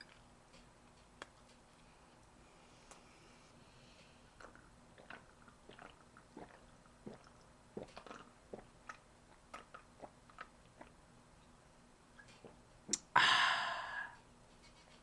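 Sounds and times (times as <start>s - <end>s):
person gulping soda: 4.4s - 11.0s, 12.3s - 14.2s.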